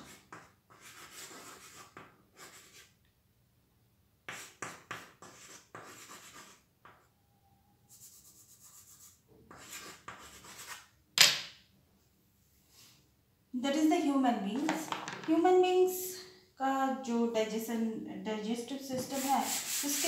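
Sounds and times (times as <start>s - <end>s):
chalk scratching on chalkboard: 0.0s - 2.9s, 4.3s - 7.0s, 7.9s - 10.9s, 18.9s - 20.0s.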